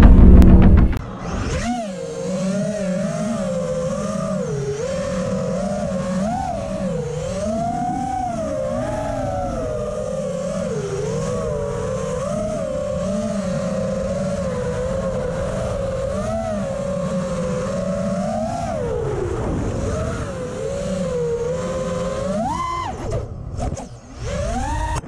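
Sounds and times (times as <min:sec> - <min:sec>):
low rush of air: 0:00.0 - 0:01.4
drone motors whining: 0:00.0 - 0:25.0.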